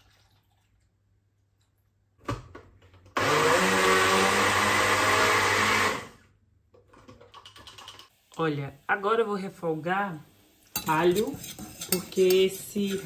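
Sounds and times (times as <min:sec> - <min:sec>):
electric blender running: 0:03.2 - 0:06.2.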